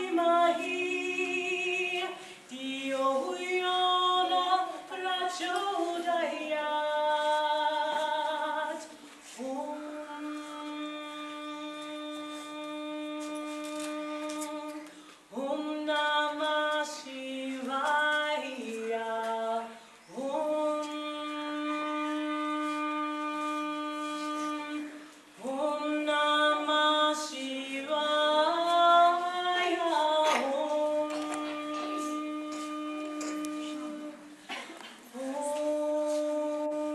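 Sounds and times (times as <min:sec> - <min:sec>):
singer breathing: 0:02.2 - 0:02.5.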